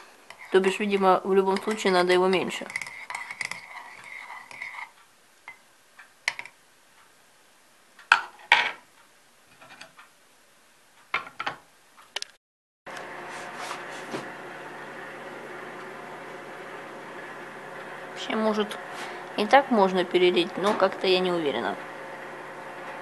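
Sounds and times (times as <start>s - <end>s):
steady hum: 12.9s - 23.0s.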